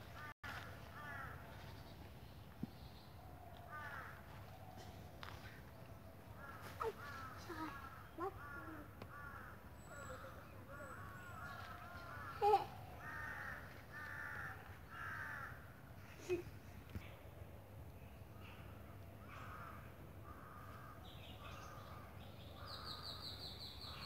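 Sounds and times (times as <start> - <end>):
crows cawing: 0.0 - 1.5, 3.6 - 5.6, 6.3 - 15.8, 19.2 - 24.0.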